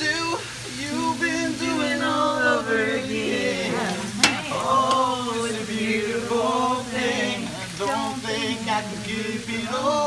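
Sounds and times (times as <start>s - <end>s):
steady hiss: 0.0s - 10.0s
man singing into microphone: 6.7s - 10.0s.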